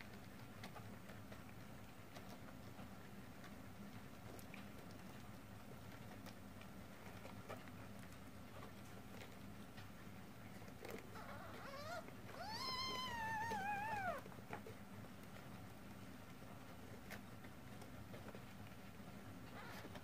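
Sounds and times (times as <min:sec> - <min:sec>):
kitten mewing: 0:11.1 - 0:14.3.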